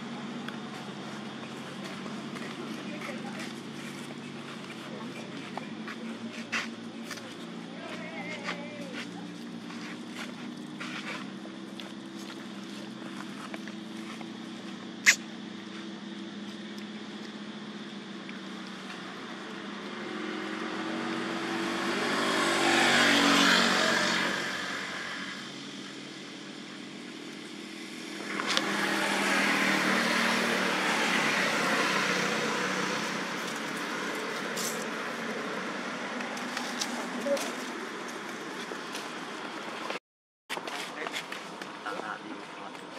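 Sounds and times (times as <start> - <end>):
road vehicles passing: 0.0 - 40.0.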